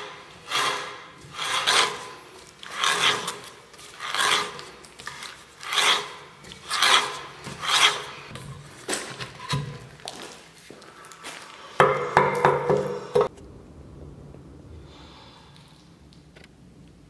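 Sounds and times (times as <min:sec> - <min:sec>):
auger bit scraping in wood: 0:00.0 - 0:09.6.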